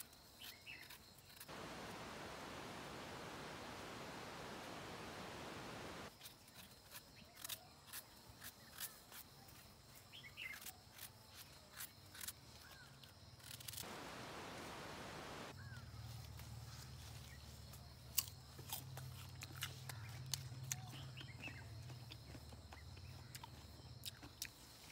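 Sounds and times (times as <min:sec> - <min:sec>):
steady low hum: 0:01.5 - 0:06.1, 0:13.8 - 0:15.5.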